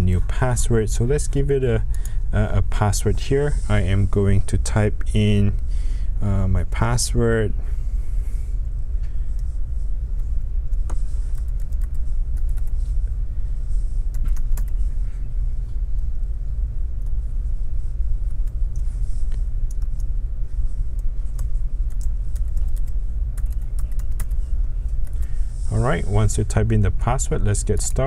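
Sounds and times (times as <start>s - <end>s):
keyboard typing clicks: 10.7s - 12.8s, 14.1s - 14.8s, 19.6s - 20.1s, 21.0s - 24.4s
loud low rumble: 24.6s - 28.0s.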